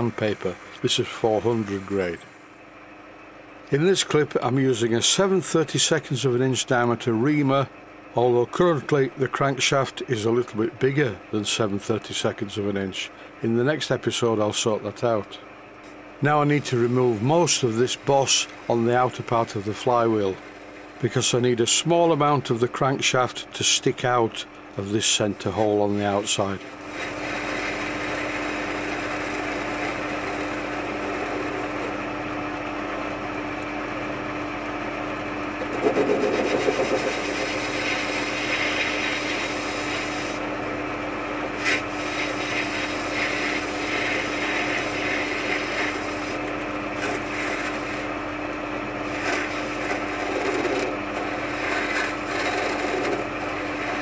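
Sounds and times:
lathe tool scraping metal: 0.0s - 2.3s, 25.0s - 32.0s, 35.6s - 40.5s, 41.5s - 48.2s, 49.0s - 54.0s
lathe humming: 0.0s - 5.4s, 14.2s - 54.0s.

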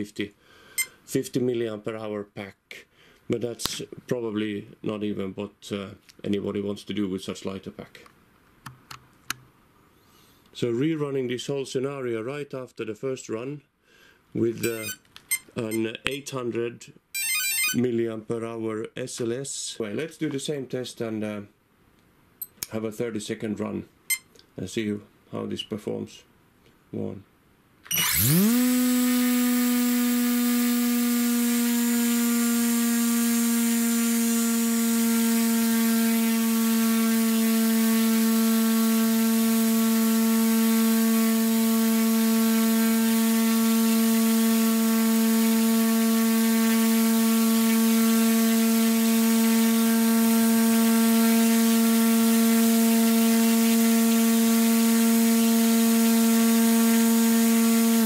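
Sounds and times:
electric motor spinning propeller: 27.9s - 58.0s.

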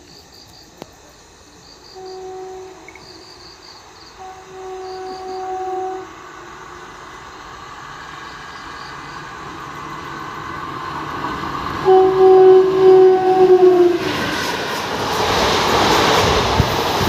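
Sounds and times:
rush of train passing: 0.0s - 17.0s
locomotive rumble: 1.5s - 17.0s
train horn blast: 1.9s - 3.3s, 4.1s - 7.0s, 11.8s - 14.2s.

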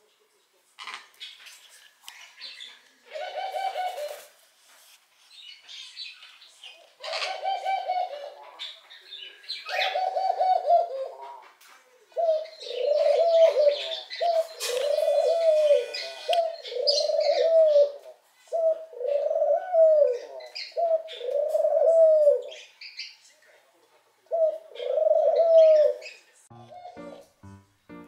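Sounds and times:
small birds chirping: 0.3s - 4.3s, 5.1s - 28.0s
dove cooing: 3.1s - 4.3s, 7.0s - 8.6s, 9.7s - 11.4s, 12.1s - 22.6s, 24.3s - 26.1s.

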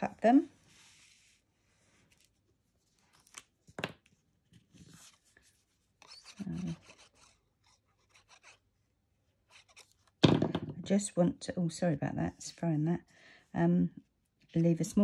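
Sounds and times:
paper rustling: 2.0s - 3.8s
glue bottle tip rubbing on card: 6.0s - 7.4s
person speaking: 6.2s - 7.1s.

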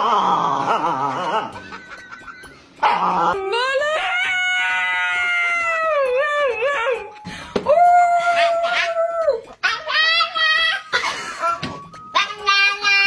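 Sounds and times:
puppy howling: 7.7s - 10.2s.

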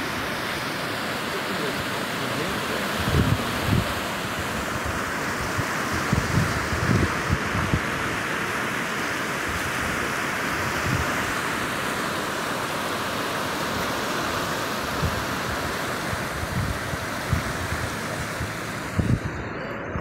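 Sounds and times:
fast-flowing river rushing: 0.0s - 20.0s
wind buffeting microphone: 2.9s - 8.2s, 14.9s - 20.0s.

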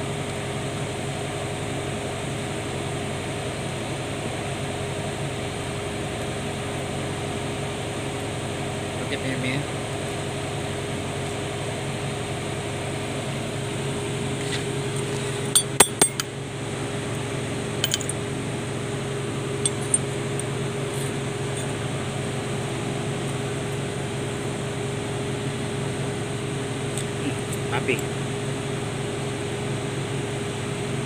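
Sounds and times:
steady background hum: 0.0s - 31.0s
metallic clinks of steel tools: 15.5s - 16.3s, 17.8s - 18.2s.

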